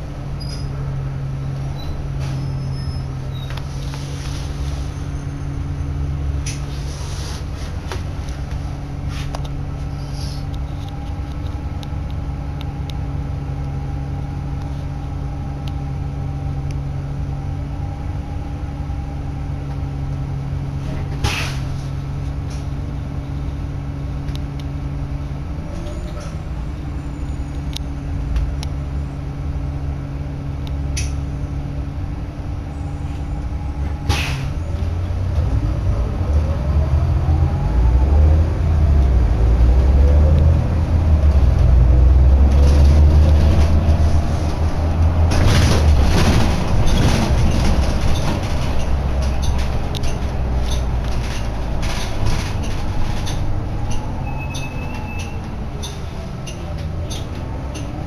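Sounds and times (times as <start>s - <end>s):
bus diesel engine idling: 0.0s - 36.4s, 40.2s - 58.0s.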